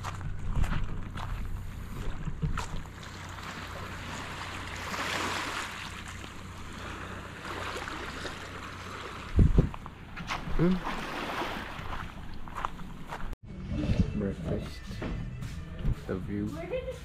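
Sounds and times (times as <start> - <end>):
motorboat engine droning: 0.2 - 13.3
rushing water and wind: 2.1 - 13.1.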